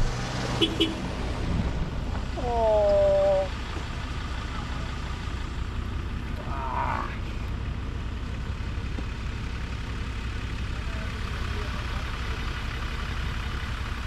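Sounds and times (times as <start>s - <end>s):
vehicle rumbling: 0.0s - 14.0s
person shouting: 2.4s - 3.6s, 6.4s - 7.2s.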